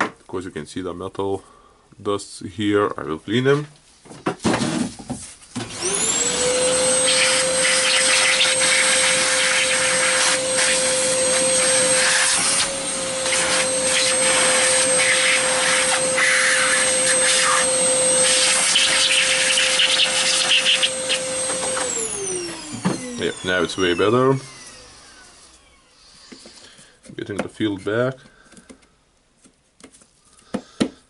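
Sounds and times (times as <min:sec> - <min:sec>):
vacuum cleaner running: 0:05.5 - 0:26.6.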